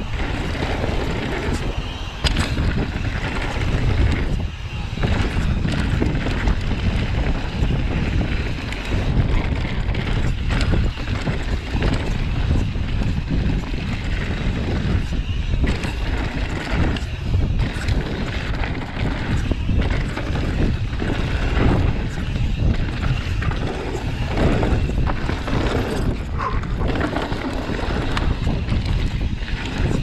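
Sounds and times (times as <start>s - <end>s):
bike knocking and rattling: 0.0s - 30.0s
wind buffeting microphone: 0.0s - 30.0s
tyres rolling over dirt and stones: 15.6s - 30.0s.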